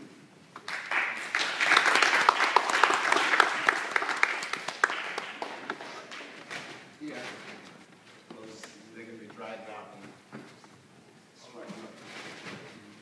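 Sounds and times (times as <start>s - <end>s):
people applauding: 0.6s - 6.4s.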